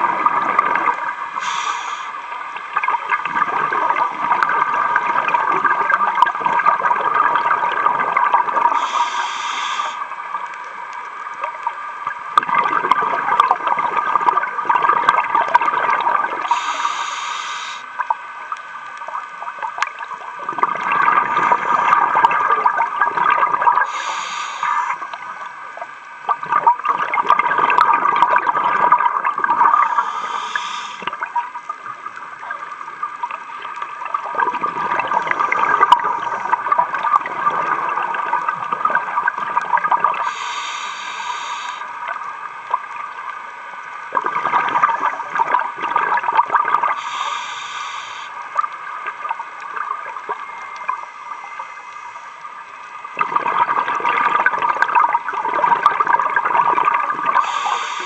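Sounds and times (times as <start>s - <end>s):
exhaled air bubbling: 0.0s - 58.0s
regulator inhalation hiss: 1.3s - 2.4s, 8.7s - 10.2s, 16.4s - 18.0s, 23.8s - 25.6s, 29.8s - 31.2s, 40.2s - 42.0s, 46.9s - 48.5s, 57.4s - 58.0s
steady hum: 15.2s - 27.0s, 29.0s - 55.3s, 56.8s - 58.0s.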